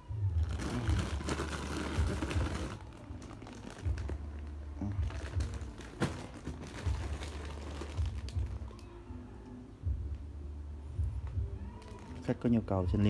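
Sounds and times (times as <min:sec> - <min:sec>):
plastic bags crinkling: 0:00.4 - 0:08.9, 0:11.8 - 0:12.6.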